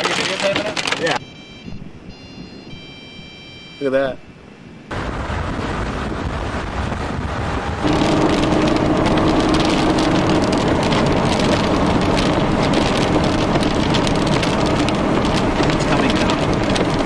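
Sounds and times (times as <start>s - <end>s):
rain hitting car: 0.0s - 1.2s, 4.9s - 17.0s
road and wind noise: 0.0s - 17.0s
engine and tyre hum: 4.8s - 17.0s.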